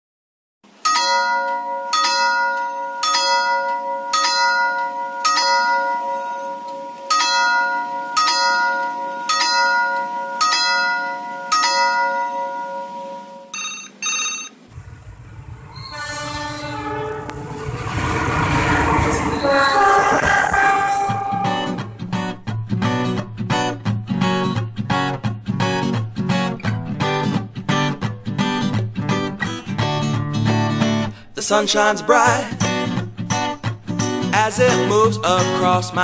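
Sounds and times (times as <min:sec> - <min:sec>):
railway signal bell ringing: 0:00.8 - 0:14.6, 0:15.6 - 0:22.2
train horn: 0:12.4 - 0:13.5, 0:14.8 - 0:22.3
diesel train rumble: 0:14.7 - 0:22.5.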